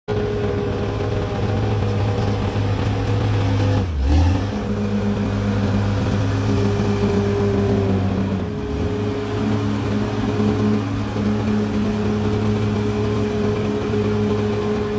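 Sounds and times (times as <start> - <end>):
bulldozer diesel engine running: 0.1 - 14.9.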